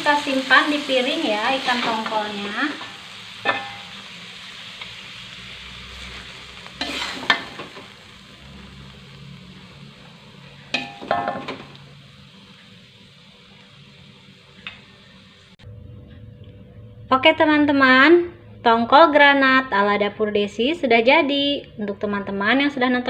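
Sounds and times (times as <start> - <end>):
oil sizzling faintly: 0.0 - 15.6
metal spatula scraping a wok: 5.7 - 7.9.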